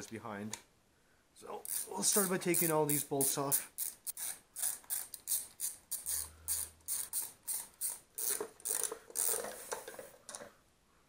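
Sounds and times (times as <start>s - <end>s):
ratchet wrench clicking: 1.6s - 9.7s.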